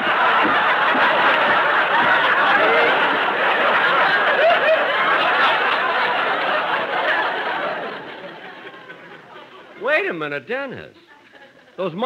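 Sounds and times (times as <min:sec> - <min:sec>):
feet marching in step: 0:00.0 - 0:04.3
studio audience laughing: 0:00.0 - 0:09.8.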